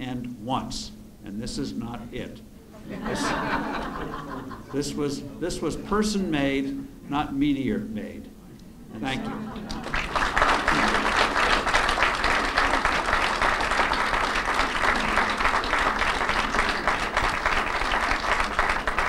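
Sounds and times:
audience applauding: 9.0s - 19.0s.

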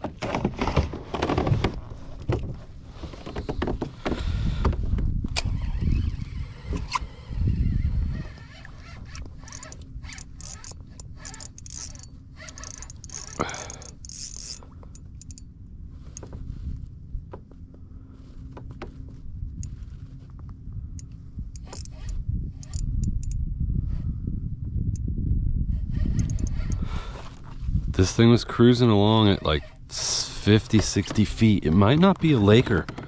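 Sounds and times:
fishing reel clicks: 5.4s - 15.5s, 21.0s - 23.4s, 26.0s - 26.9s.

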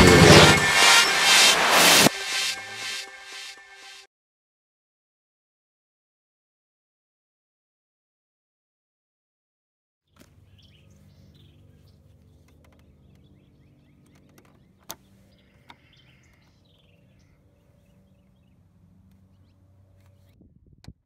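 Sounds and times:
low hum: 0.0s - 4.1s.

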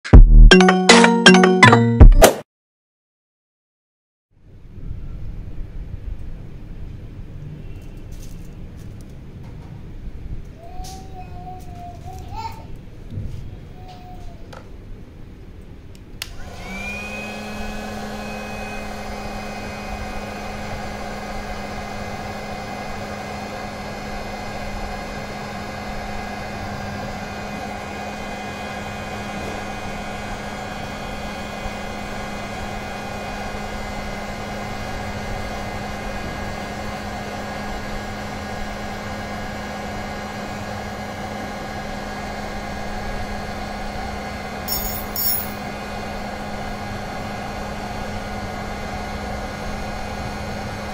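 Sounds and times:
heat gun fan humming: 16.2s - 34.7s, 43.6s - 50.9s.

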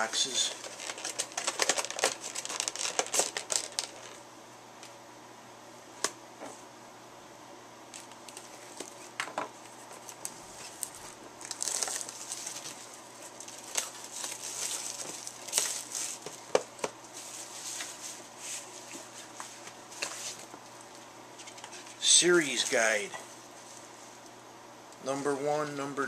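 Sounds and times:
plastic packaging crinkling: 0.0s - 4.2s, 7.9s - 21.9s.

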